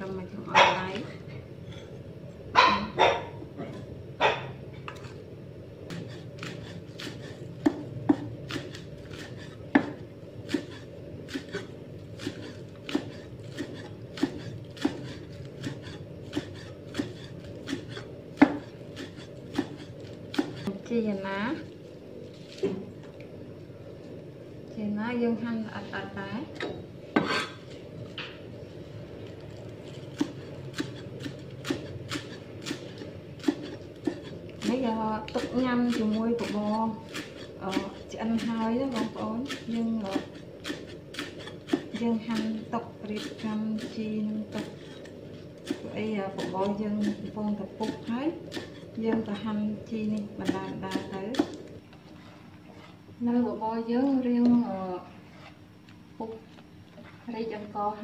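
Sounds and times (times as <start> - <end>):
cleaver chopping on wooden block: 5.9 - 20.7, 30.1 - 34.7, 35.4 - 43.9.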